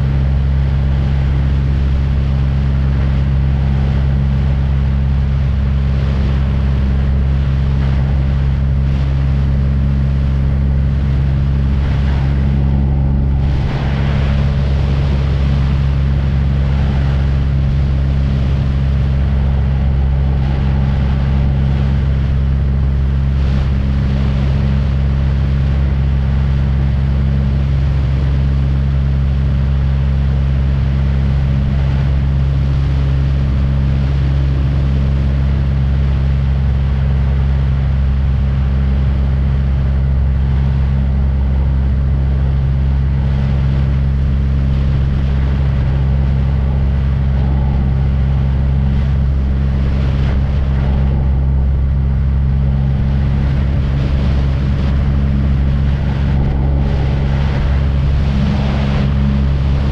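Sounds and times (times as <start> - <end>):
small aircraft engine drone: 0.0 - 59.9.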